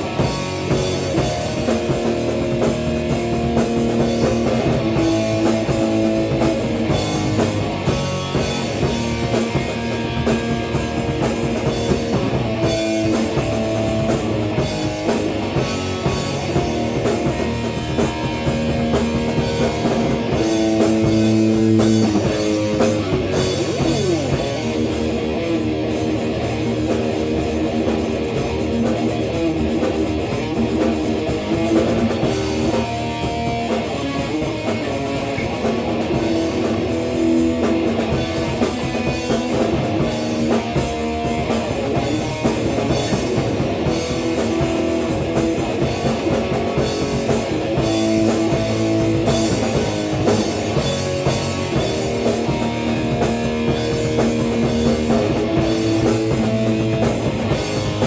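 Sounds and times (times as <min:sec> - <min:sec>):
drum kit: 0:00.0 - 0:58.0.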